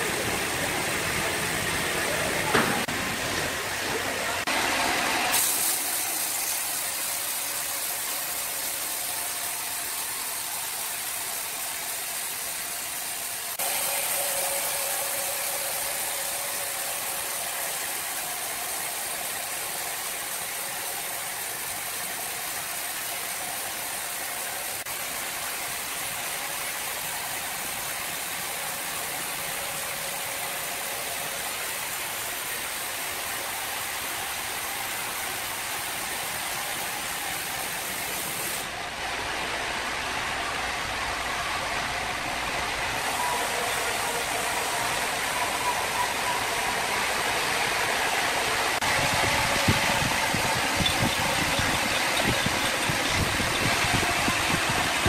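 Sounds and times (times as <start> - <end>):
band saw cutting timber: 48.8 - 55.0.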